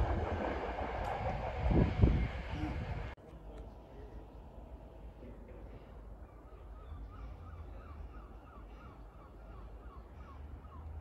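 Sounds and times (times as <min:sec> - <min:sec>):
steady low rumble: 0:00.0 - 0:03.2.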